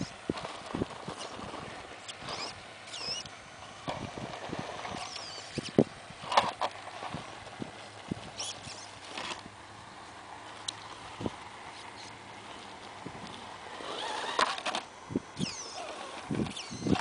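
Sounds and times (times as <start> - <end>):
rc car knocking and scraping on rock: 0.0 - 7.4, 8.3 - 9.5, 13.3 - 17.0.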